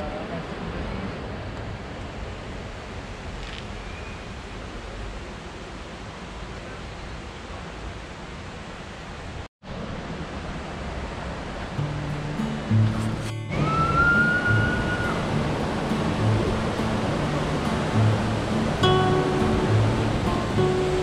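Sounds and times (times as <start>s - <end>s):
waterfall roar: 0.0s - 21.0s.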